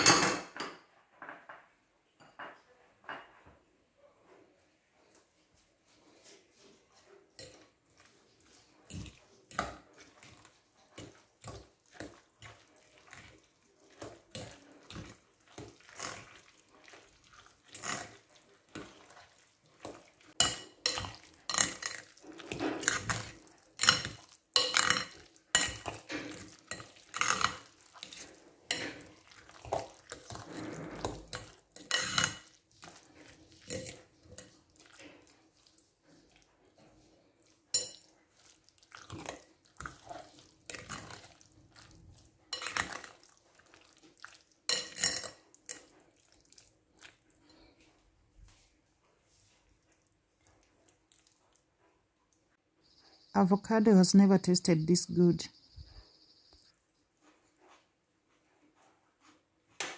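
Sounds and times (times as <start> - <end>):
wet squish of mashing avocado: 7.5 - 24.5, 25.1 - 44.7, 45.5 - 52.6
utensil scraping glass bowl: 14.0 - 35.4, 44.7 - 46.0.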